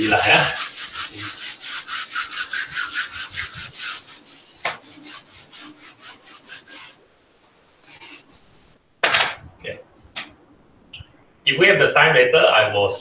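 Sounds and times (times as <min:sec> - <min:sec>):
eraser rubbing whiteboard: 0:00.0 - 0:07.0, 0:07.8 - 0:08.5.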